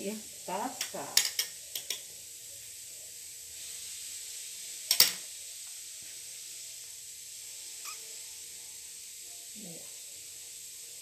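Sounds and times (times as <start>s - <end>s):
room noise hiss: 0.0s - 11.0s
kitchenware clatter: 0.8s - 2.1s, 4.9s - 5.2s.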